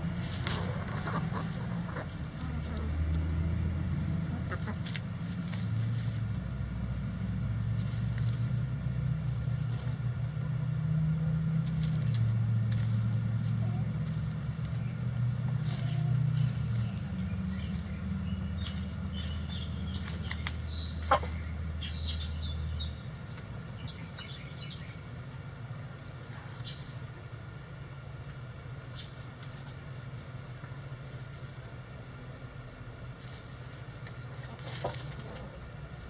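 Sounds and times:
hens chirping and clucking: 0.0s - 6.6s, 7.8s - 36.0s
chickens scratching in litter: 0.0s - 24.2s, 25.9s - 27.0s, 28.9s - 36.0s
low engine drone: 0.0s - 36.0s.

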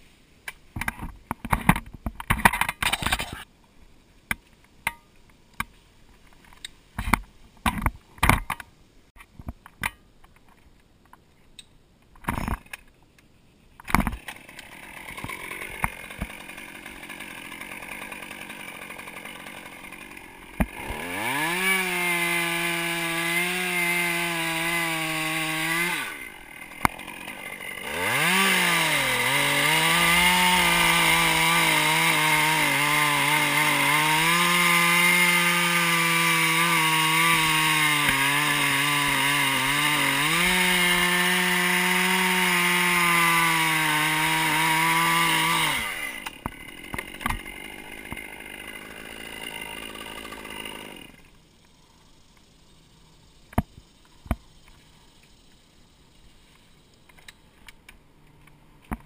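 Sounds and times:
chainsaw cutting wood: 14.0s - 51.4s.

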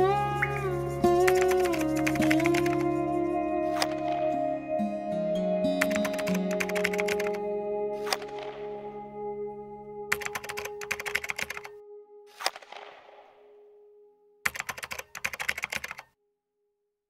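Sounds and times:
held musical tone: 0.0s - 12.4s
keyboard typing clicks: 1.3s - 2.9s, 5.8s - 7.4s, 10.1s - 11.7s, 14.5s - 16.1s.

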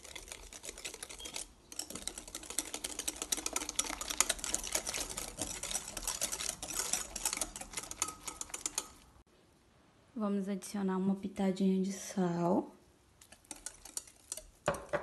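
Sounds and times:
whisk clicking against glass bowl: 0.0s - 9.1s, 13.2s - 15.0s.

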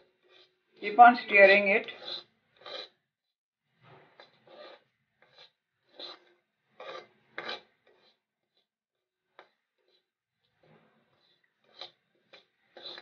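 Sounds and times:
steel spoon scraping a pan: 0.0s - 3.0s, 3.9s - 13.0s.

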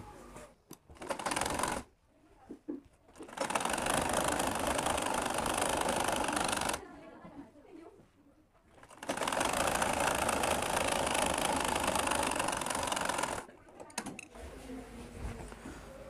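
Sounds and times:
sewing machine running: 0.9s - 1.9s, 3.1s - 6.9s, 8.7s - 13.5s.

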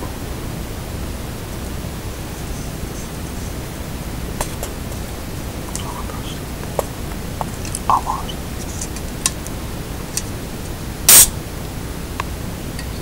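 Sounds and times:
steady background hiss: 0.0s - 13.0s
can opening gas hiss: 10.1s - 11.4s.

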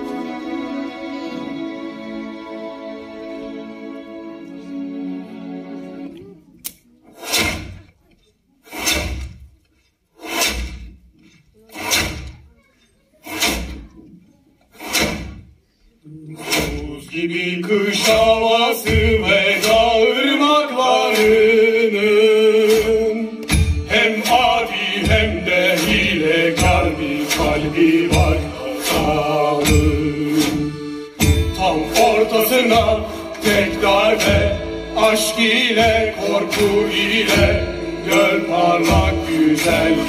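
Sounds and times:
voices chanting: 16.1s - 40.0s
slow percussion strikes: 22.6s - 40.0s
steady low beat: 23.0s - 40.0s.

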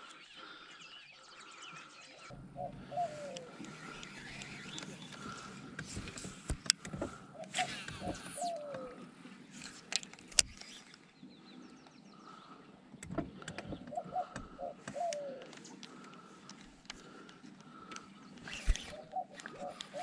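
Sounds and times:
bird's low call: 0.0s - 5.7s, 7.3s - 9.1s.

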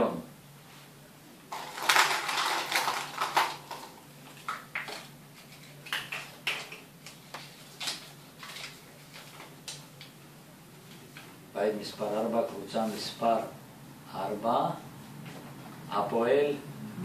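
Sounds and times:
plastic balls clattering in glass bowl: 1.5s - 5.1s
paper slip rustling: 1.5s - 10.1s.

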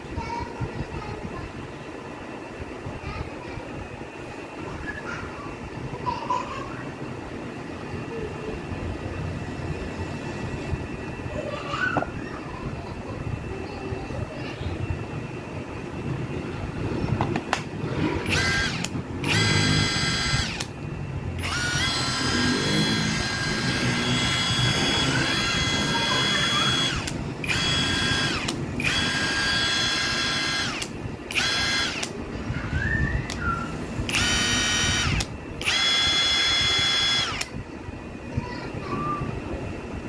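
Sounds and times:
impact wrench motor whining: 18.2s - 20.8s, 21.4s - 32.2s, 34.1s - 37.6s.

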